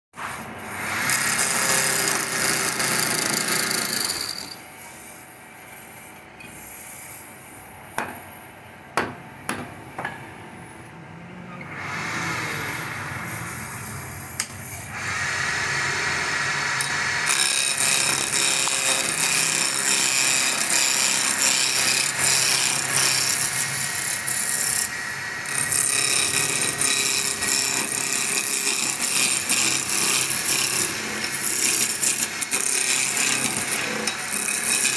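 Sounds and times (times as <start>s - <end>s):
lathe tool scraping wood: 11.7s - 34.9s.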